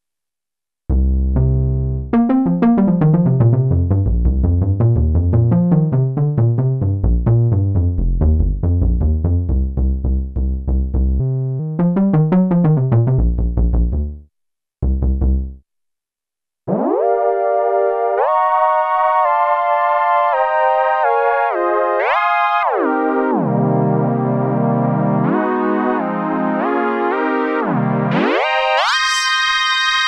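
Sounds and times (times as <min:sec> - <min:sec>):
synthesizer bass notes: 0:00.9 - 0:14.2, 0:14.8 - 0:15.6.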